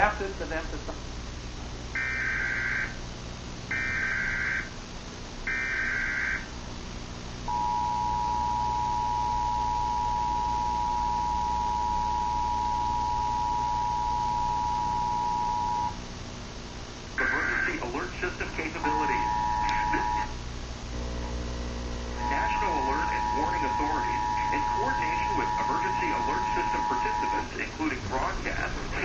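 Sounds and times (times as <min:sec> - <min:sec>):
data bursts: 0:07.5 - 0:16.0, 0:17.2 - 0:20.4, 0:22.0 - 0:29.0
two-tone attention signal: 0:07.5 - 0:16.0, 0:18.9 - 0:20.3, 0:22.2 - 0:27.5.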